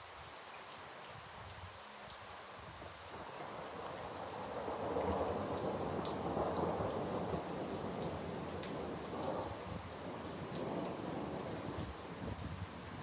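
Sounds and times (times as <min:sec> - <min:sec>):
steady rain: 0:00.0 - 0:13.0
raindrops ticking: 0:02.8 - 0:12.5
thunder rumbling: 0:04.5 - 0:12.0.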